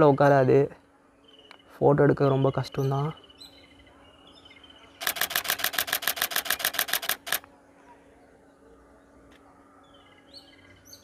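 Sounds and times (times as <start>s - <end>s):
faint bird chirps: 1.1s - 5.5s
camera shutter burst: 5.0s - 7.5s.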